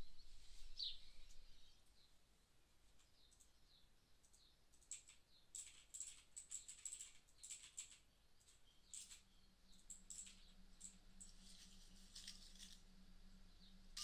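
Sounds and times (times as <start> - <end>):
faint low hum: 0.0 - 14.0
keyboard and mouse clicking: 4.2 - 11.0.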